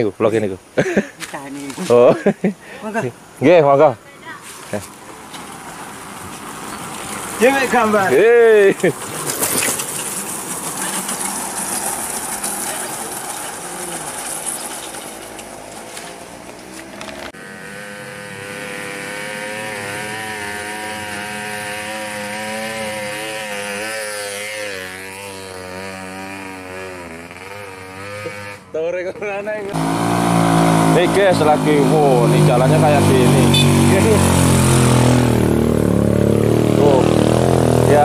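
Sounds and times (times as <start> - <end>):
motorcycle engine passing: 5.2 - 38.0.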